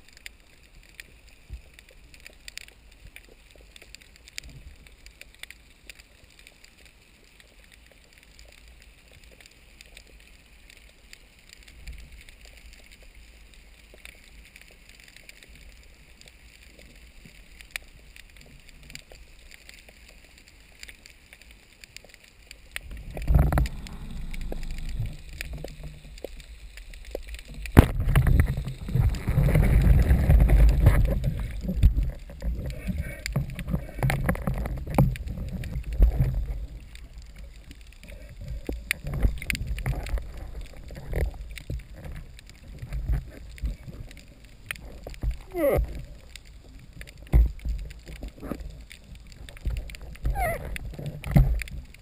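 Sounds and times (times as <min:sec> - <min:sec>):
small underwater clicks: 0:00.0 - 0:52.0
underwater hiss: 0:22.8 - 0:31.7
water rushing and churning: 0:22.8 - 0:51.9.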